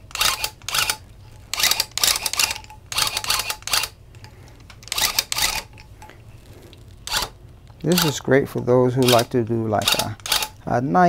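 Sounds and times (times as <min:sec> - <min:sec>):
tufting gun clattering bursts: 0:00.1 - 0:04.0, 0:04.6 - 0:05.8, 0:07.0 - 0:08.2, 0:09.0 - 0:10.6.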